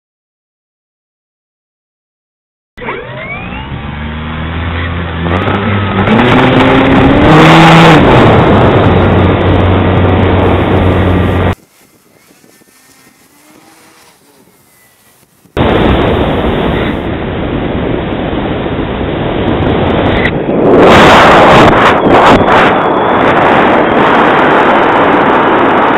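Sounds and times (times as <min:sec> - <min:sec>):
motor whine rising in pitch: 0:02.8 - 0:17.1
wind rushing over camera: 0:04.9 - 0:25.9
steady low tones: 0:08.3 - 0:17.5.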